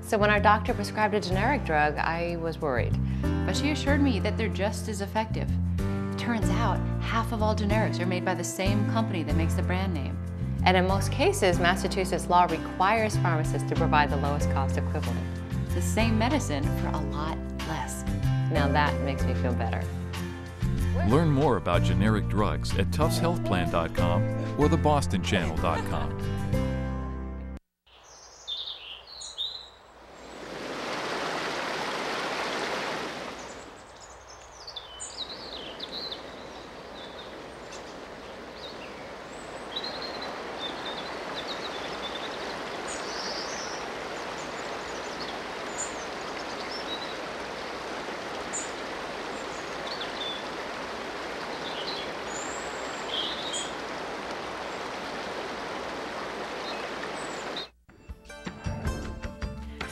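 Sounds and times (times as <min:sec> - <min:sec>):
birds chirping and calling: 0:28.0 - 0:29.8, 0:33.4 - 0:47.6, 0:51.3 - 0:53.8
running water rushing: 0:30.0 - 0:57.7.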